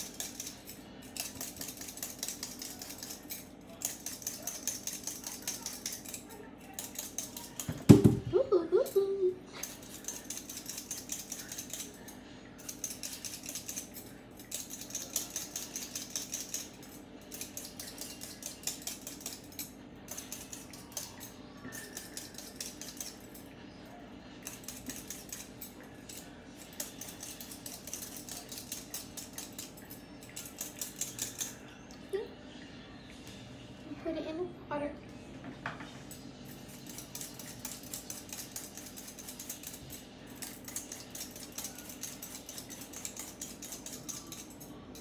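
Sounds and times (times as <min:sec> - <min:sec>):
peeler scraping potato skin: 0:00.0 - 0:07.7, 0:24.4 - 0:31.6, 0:36.6 - 0:45.0.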